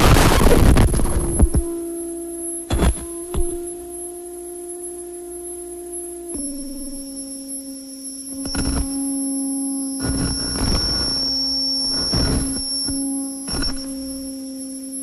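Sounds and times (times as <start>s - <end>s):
low synthesizer drone: 0.0s - 15.0s
thin high whine: 0.0s - 15.0s.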